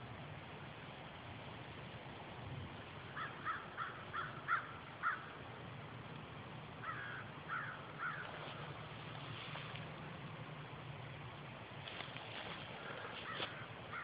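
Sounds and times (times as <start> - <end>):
bird calling: 3.1 - 5.4, 6.8 - 9.7, 12.4 - 14.0.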